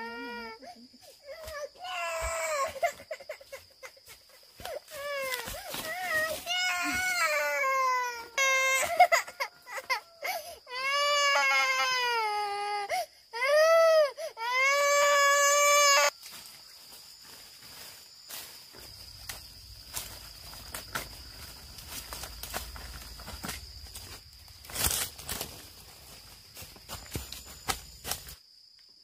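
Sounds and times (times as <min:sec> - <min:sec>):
baby crying: 0:01.2 - 0:03.3, 0:05.0 - 0:16.1.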